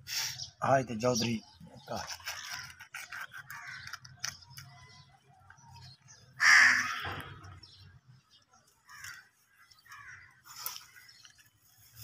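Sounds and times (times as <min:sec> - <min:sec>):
plastic pouches rustling: 0:01.8 - 0:04.8, 0:08.9 - 0:12.0
crow cawing: 0:03.5 - 0:04.0, 0:06.4 - 0:07.4, 0:08.8 - 0:10.5.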